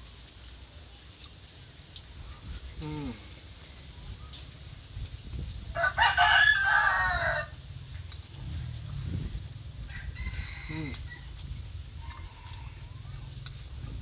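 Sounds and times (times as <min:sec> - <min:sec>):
rooster crowing: 0:05.7 - 0:07.6, 0:09.8 - 0:11.4.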